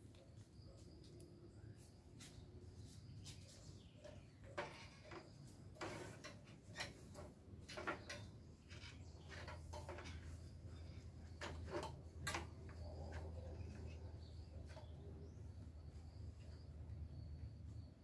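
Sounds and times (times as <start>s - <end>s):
ladder knocking and creaking: 4.0s - 14.0s.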